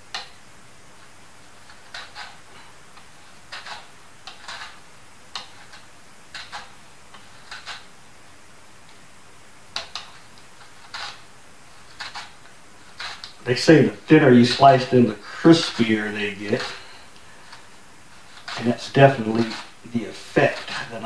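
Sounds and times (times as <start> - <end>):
mandoline slicer scraping cut: 1.6 - 2.4, 3.5 - 4.8, 5.4 - 7.9, 9.8 - 16.9, 18.2 - 21.0.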